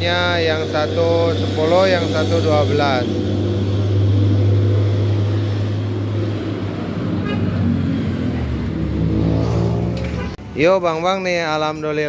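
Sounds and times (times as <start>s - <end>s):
vehicle engine hum: 0.0s - 10.7s
short high horn toot: 7.2s - 7.6s.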